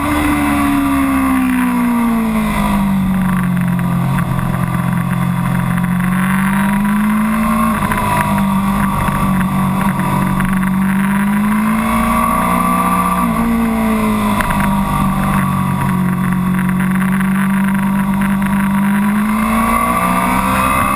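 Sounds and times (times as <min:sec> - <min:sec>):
motorcycle engine revving: 0:00.0 - 0:20.9.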